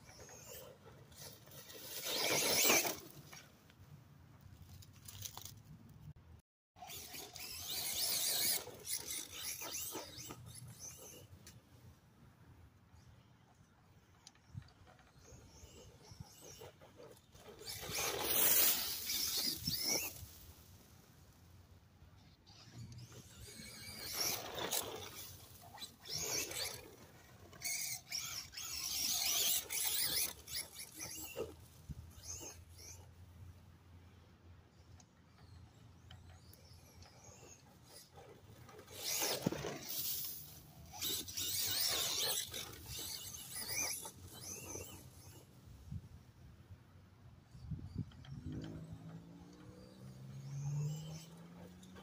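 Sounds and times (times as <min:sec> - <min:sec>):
rc truck motor whine: 0:00.0 - 0:03.7, 0:06.8 - 0:12.0, 0:13.0 - 0:52.0
tyres scrabbling in sand: 0:14.8 - 0:21.3, 0:22.4 - 0:33.0, 0:36.3 - 0:45.4.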